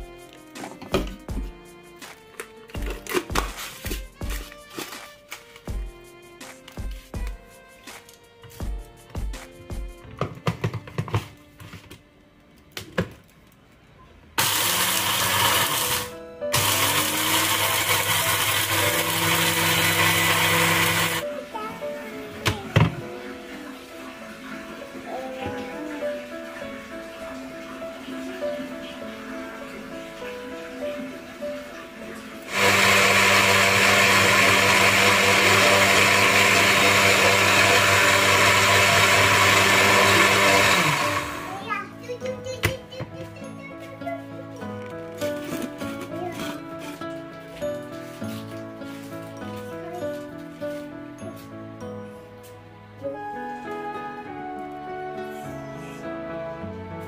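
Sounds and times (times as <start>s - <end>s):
electric blender motor running: 14.4s - 21.2s, 32.5s - 41.6s.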